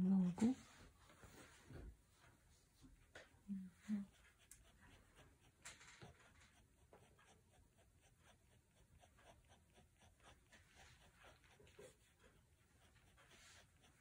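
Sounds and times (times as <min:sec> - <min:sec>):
pen scratching on paper: 0:04.1 - 0:14.0.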